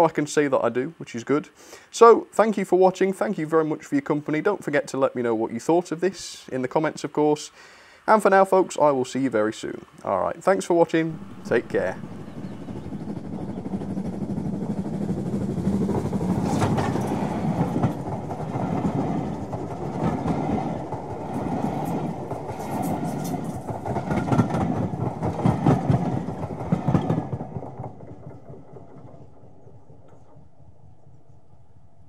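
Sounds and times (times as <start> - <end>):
passenger train rumbling past: 8.0 - 32.0
wheels clacking over rail joints: 11.0 - 30.9.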